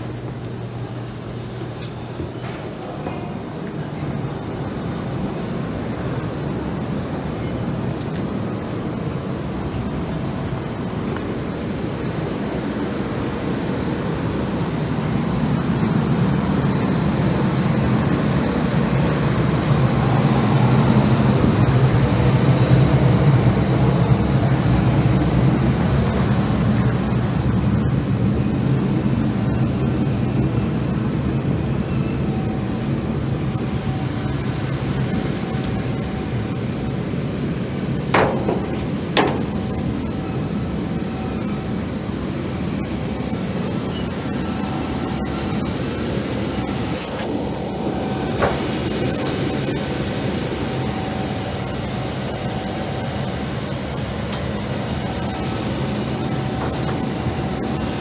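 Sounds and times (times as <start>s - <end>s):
steady rumble with high whine: 0.0s - 58.0s.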